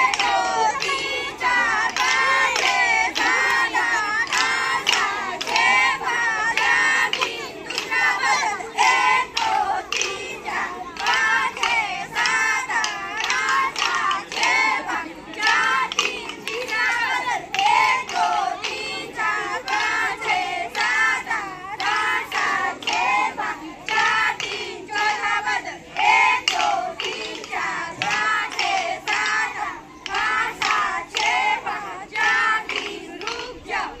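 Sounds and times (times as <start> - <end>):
young voices singing: 0.0 - 34.0.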